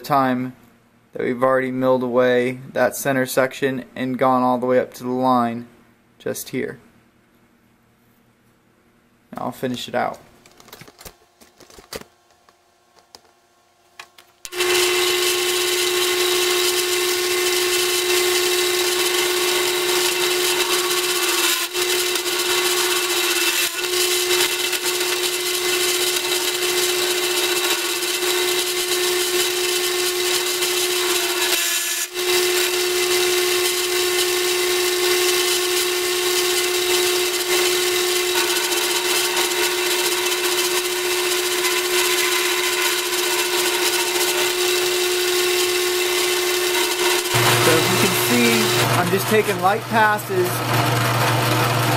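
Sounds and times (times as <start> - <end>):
drill press milling steel: 14.5 - 51.9.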